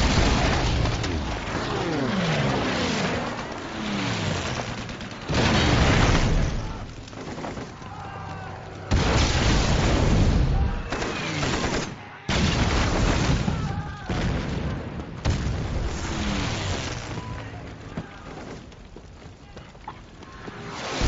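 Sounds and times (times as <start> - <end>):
voices calling out: 6.4 - 9.2, 17.0 - 21.0
bomb explosions with rumble: 8.8 - 18.5.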